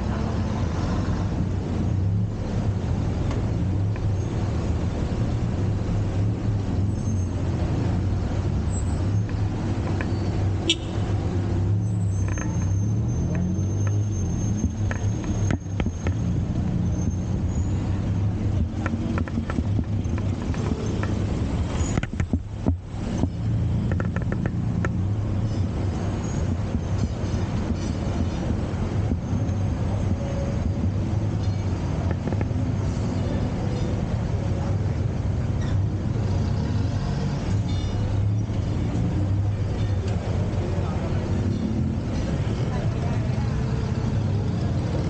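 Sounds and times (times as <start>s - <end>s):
auto-rickshaw engine running: 0.0s - 45.0s
scattered clicks: 23.8s - 25.0s.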